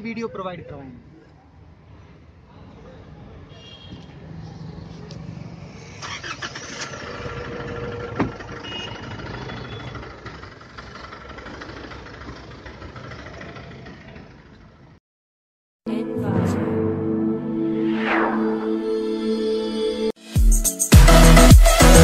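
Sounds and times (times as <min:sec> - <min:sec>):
truck engine starting and idling: 0:05.1 - 0:15.0.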